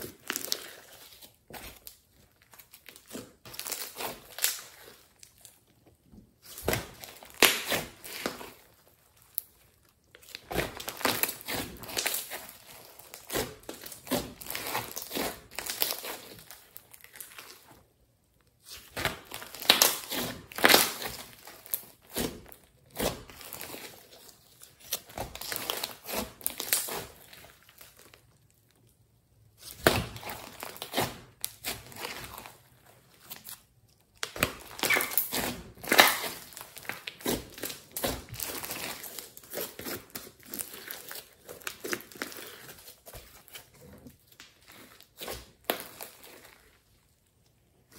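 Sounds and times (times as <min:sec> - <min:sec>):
slime squeezed by hand: 0:34.3 - 0:46.7.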